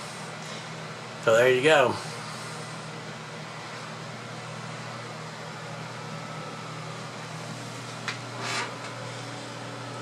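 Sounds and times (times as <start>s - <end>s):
cooling blower whirring: 0.0s - 10.0s.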